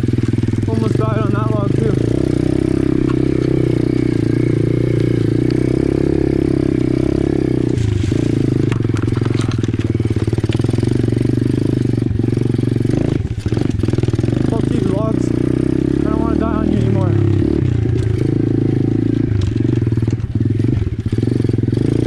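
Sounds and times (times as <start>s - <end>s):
motorbike engine running: 0.0s - 22.0s
bike clattering over roots: 0.1s - 3.8s, 7.6s - 15.2s, 17.7s - 21.2s.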